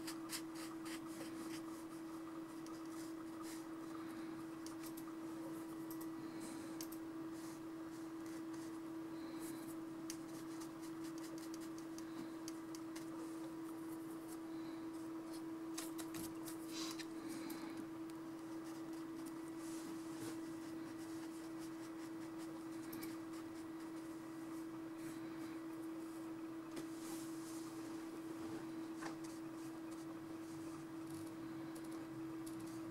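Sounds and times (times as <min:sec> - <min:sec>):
steady hum: 0:00.0 - 0:32.9
paintbrush scratching on paper: 0:10.3 - 0:11.9, 0:18.5 - 0:24.2.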